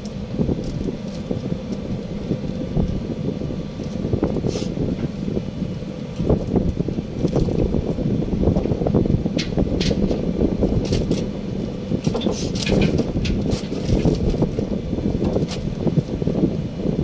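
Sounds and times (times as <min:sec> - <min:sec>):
low rumble: 0:00.0 - 0:17.0
clicks and rustles of handling: 0:12.0 - 0:16.1.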